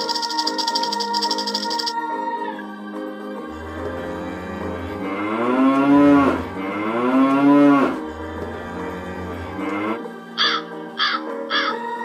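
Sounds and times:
background music: 0:00.0 - 0:12.0
buffalo mooing: 0:03.6 - 0:10.6.

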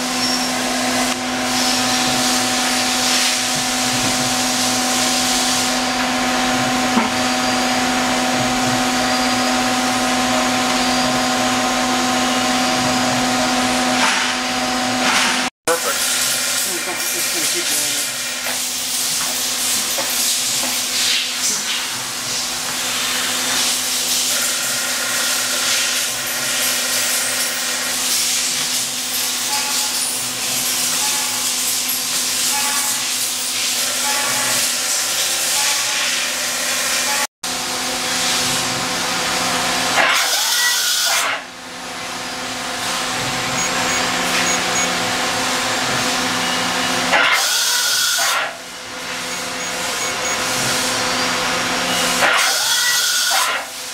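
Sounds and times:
machining center motors humming: 0:00.0 - 0:20.8, 0:32.1 - 0:53.9
machine tones switching: 0:43.1 - 0:48.3, 0:49.0 - 0:53.4.

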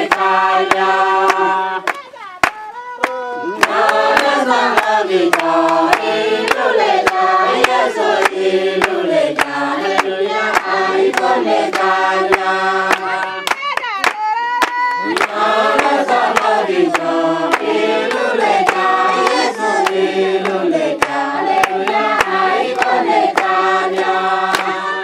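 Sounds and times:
group singing together: 0:00.0 - 0:13.6, 0:14.6 - 0:25.0
hands clapping in time: 0:00.0 - 0:25.0
single voice singing: 0:00.0 - 0:25.0.

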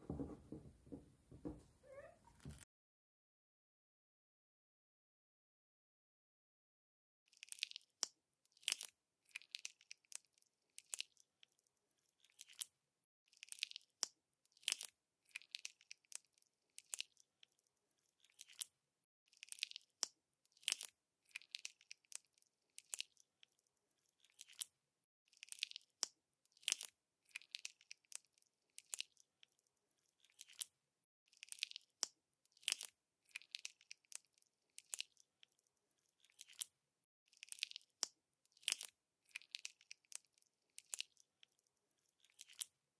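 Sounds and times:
sticky clicks and pops: 0:31.4 - 0:35.2, 0:37.4 - 0:41.2.

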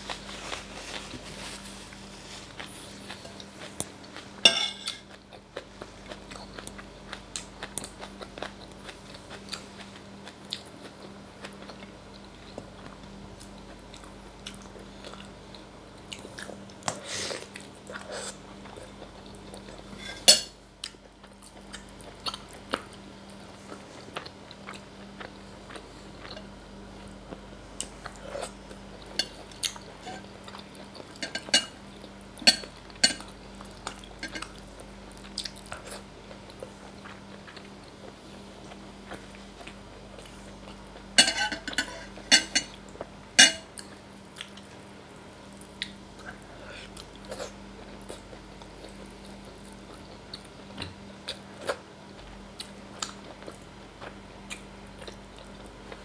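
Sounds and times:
metal spoon clinking bowl: 0:04.5 - 0:05.0, 0:41.2 - 0:42.7.

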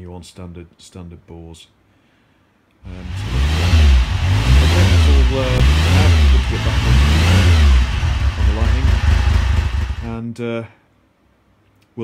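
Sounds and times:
motorcycle engine revving: 0:02.9 - 0:10.2.

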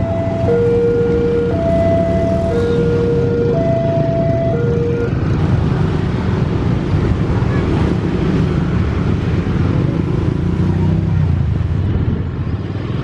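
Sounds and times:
two-tone crossing alarm: 0:00.0 - 0:05.2.

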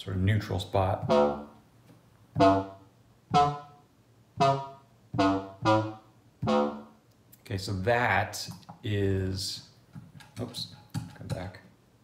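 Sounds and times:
bright pitched synth notes: 0:01.0 - 0:01.6, 0:02.4 - 0:03.8, 0:04.4 - 0:07.0.

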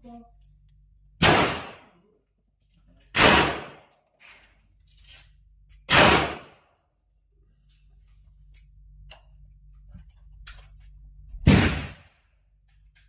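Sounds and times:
pistol shot with echo: 0:01.2 - 0:01.9, 0:03.2 - 0:03.8, 0:05.9 - 0:06.6, 0:11.5 - 0:12.1.

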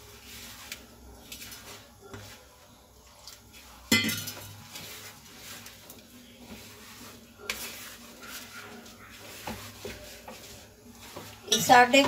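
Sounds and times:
hands squishing dough: 0:00.0 - 0:12.0
steel bowl clinking on metal: 0:03.9 - 0:04.5.

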